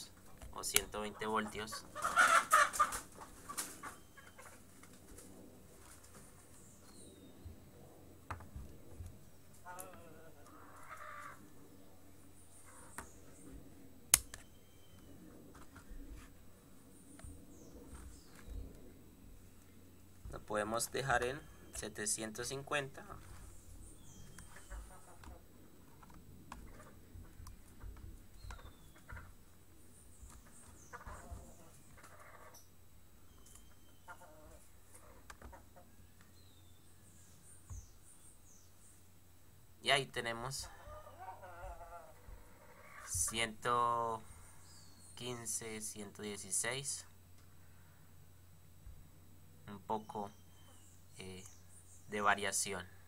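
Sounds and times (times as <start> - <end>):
faint bird calls: 0.7 - 4.8, 9.4 - 39.0, 40.3 - 46.4, 49.6 - 53.0
small birds chirping and whistling: 3.6 - 4.6, 14.2 - 15.2, 20.8 - 22.7, 23.4 - 25.0, 28.3 - 29.3, 30.0 - 34.2, 36.3 - 38.7, 50.0 - 52.4.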